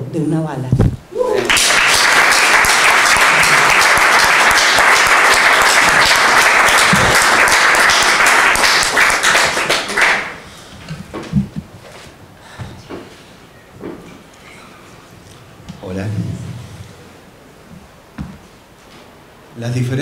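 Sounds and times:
audience applauding: 1.3s - 10.4s.

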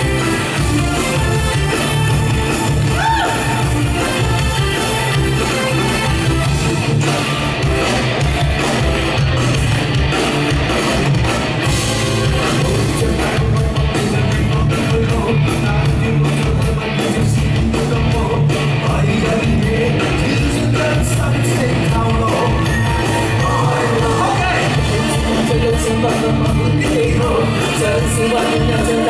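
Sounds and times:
drum kit: 0.0s - 29.0s
electric guitar: 0.0s - 29.0s
live rock band: 0.0s - 29.0s.

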